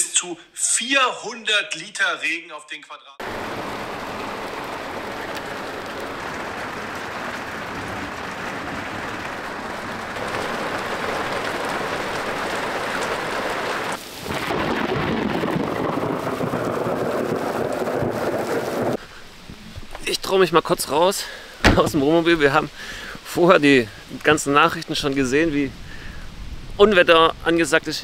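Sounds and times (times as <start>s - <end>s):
thunder rumbling: 3.2s - 19.0s
hard rain hissing: 3.2s - 28.0s.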